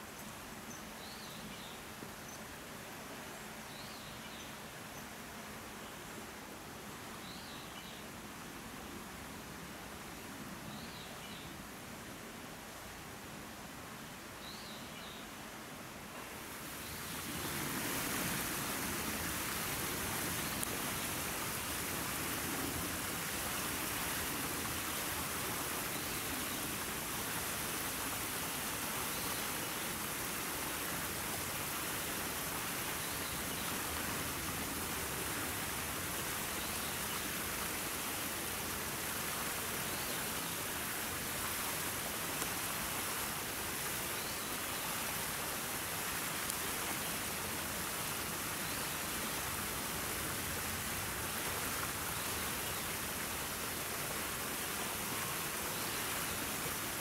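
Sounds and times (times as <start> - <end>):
steady rushing hiss: 15.3 - 57.0.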